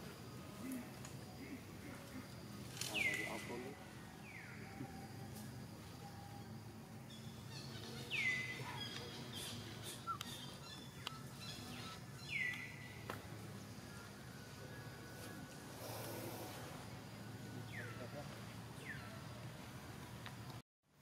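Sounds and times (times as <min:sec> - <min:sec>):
outdoor background hum: 0:00.0 - 0:20.6
bird calling: 0:07.1 - 0:13.0.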